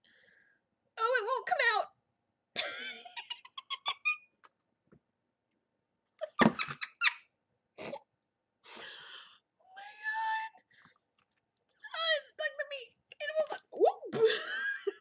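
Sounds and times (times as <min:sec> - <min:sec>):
woman laughing: 0:02.6 - 0:04.2, 0:14.1 - 0:15.0.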